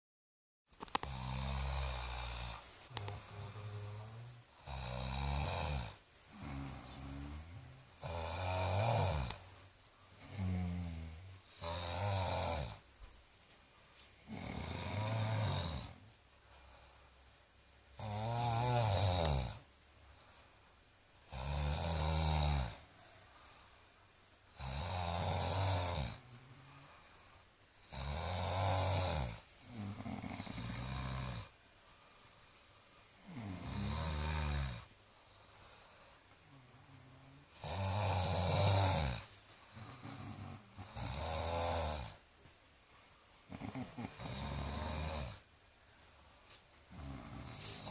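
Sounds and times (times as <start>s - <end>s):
quiet breathing: 0.9s - 47.9s
man snoring: 1.0s - 9.4s, 10.2s - 12.9s, 14.2s - 16.0s, 17.9s - 19.7s, 21.3s - 23.1s, 24.5s - 31.6s, 33.2s - 34.9s, 35.7s - 42.2s, 43.5s - 45.5s, 46.9s - 47.9s.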